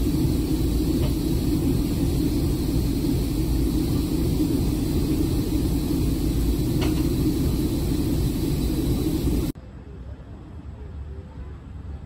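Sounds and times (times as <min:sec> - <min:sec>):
steam escaping hiss and rumble: 0:00.0 - 0:09.6.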